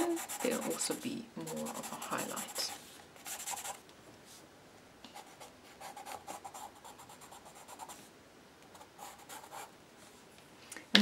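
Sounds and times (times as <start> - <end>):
pencil scratching on paper: 0.0 - 3.8, 5.2 - 8.0, 8.7 - 9.7.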